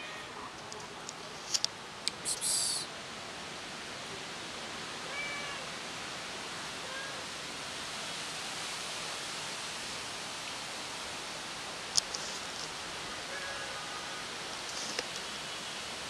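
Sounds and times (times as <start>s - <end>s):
faint cat meows: 0.0s - 0.5s, 5.0s - 5.7s, 6.7s - 7.3s, 13.2s - 14.2s
steady background hiss: 0.0s - 16.0s.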